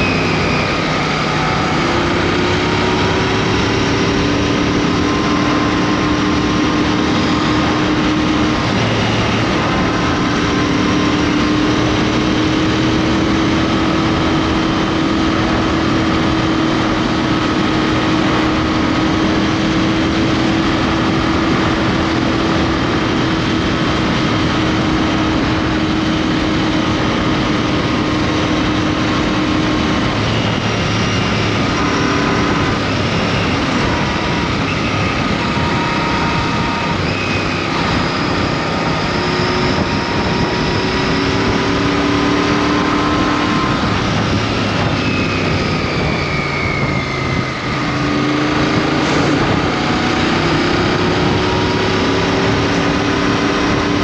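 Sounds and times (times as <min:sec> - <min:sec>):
motorcycle engine cruising: 0:00.0 - 0:54.0
wind noise: 0:00.0 - 0:54.0.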